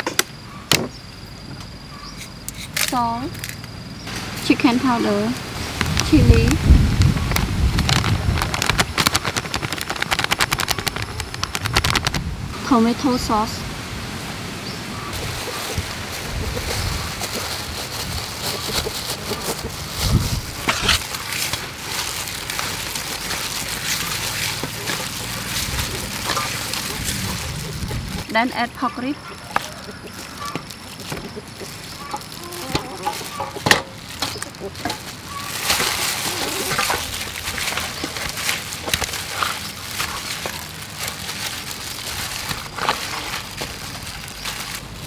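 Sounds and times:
steady background noise: 0.0s - 45.0s
hands squishing wet sauce: 21.0s - 28.3s, 29.3s - 45.0s.

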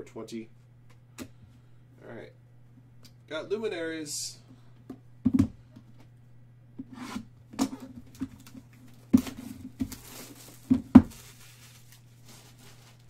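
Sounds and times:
cardboard rustling: 7.7s - 13.0s.

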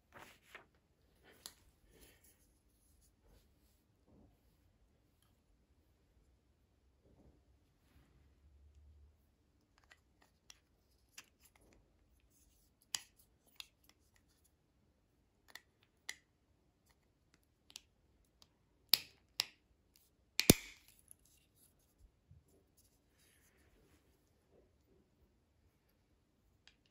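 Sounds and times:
loud plastic snaps: 20.4s - 20.9s.

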